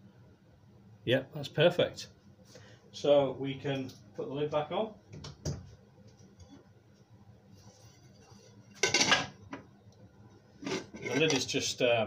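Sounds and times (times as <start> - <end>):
metal lid clattering: 8.8 - 9.4, 10.6 - 11.6.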